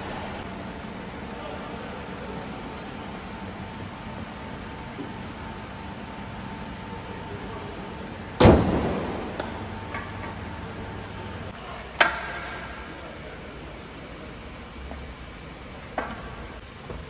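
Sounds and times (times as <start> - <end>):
workshop hum: 0.0 - 17.0
car hood slamming shut: 8.4 - 9.2.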